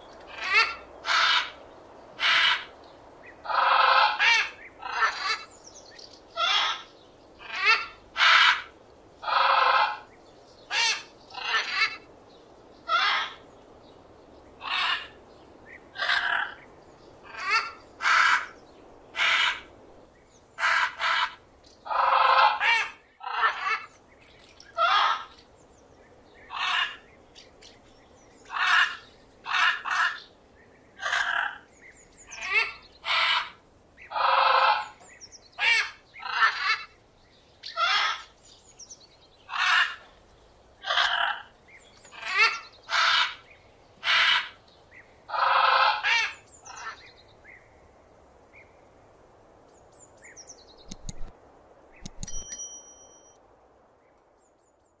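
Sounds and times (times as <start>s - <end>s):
soft clicks: 50.8s - 51.3s, 52.0s - 52.6s
short high chirp: 52.0s - 53.4s.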